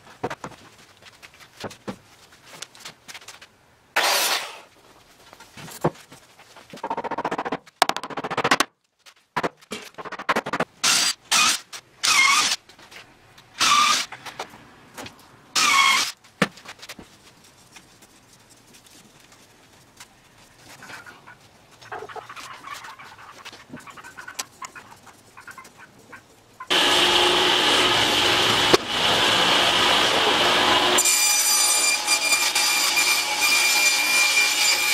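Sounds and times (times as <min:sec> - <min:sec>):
cordless drill whining into wood: 0:10.9 - 0:12.6, 0:15.6 - 0:16.1.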